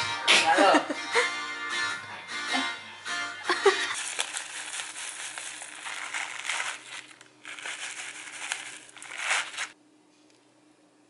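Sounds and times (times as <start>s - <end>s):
dry oats pattering into bowl: 4.0s - 9.8s
plastic bag crinkling: 4.0s - 9.8s.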